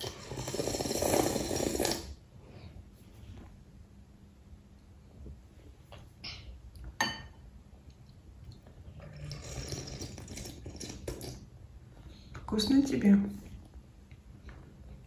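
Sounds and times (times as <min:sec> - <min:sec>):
child slurping soup: 0:00.0 - 0:02.2, 0:09.0 - 0:11.5
spoon clinking against bowl: 0:07.0 - 0:07.4.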